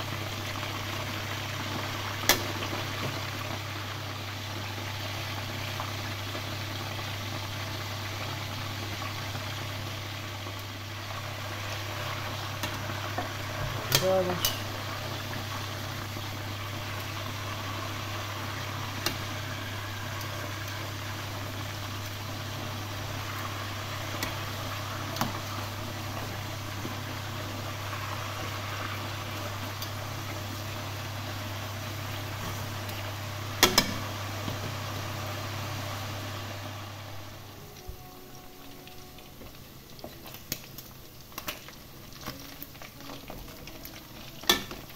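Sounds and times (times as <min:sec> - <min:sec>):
frying oil sizzling: 0:00.0 - 0:44.9
metal tongs clicking on pot: 0:13.9 - 0:14.7, 0:33.6 - 0:34.0.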